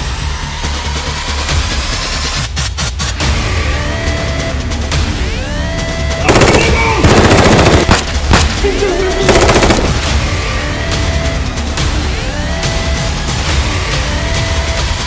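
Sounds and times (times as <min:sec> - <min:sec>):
rapid clicking bursts: 0:06.3 - 0:08.5, 0:09.3 - 0:10.1.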